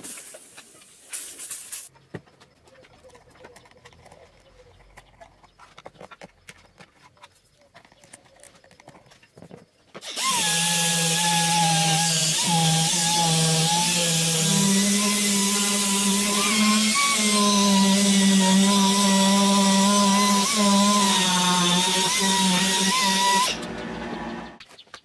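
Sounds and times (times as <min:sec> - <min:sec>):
electric power tool running: 0:10.0 - 0:24.6.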